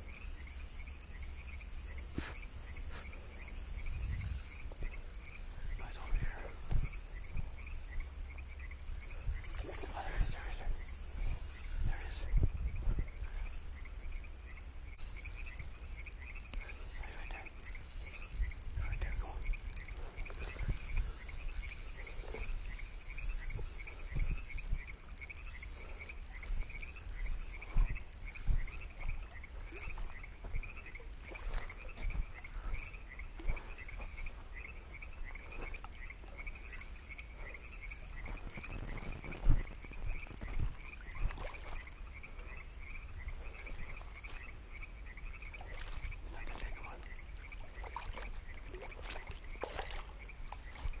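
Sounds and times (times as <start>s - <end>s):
frogs croaking: 0.0s - 51.0s
high trill of insects: 0.0s - 51.0s
footsteps on dirt path: 2.1s - 3.3s, 27.6s - 36.5s, 38.2s - 40.9s.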